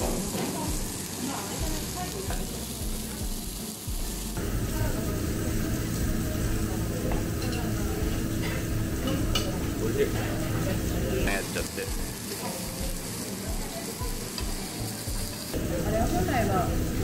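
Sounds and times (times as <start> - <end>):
pork sizzling on grill: 0.0 - 17.0
steady low hum: 4.4 - 11.3.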